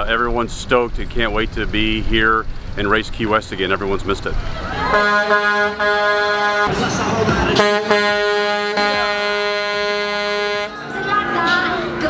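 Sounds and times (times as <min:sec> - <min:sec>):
truck air horn blasts: 0:04.9 - 0:06.8, 0:07.6 - 0:10.8.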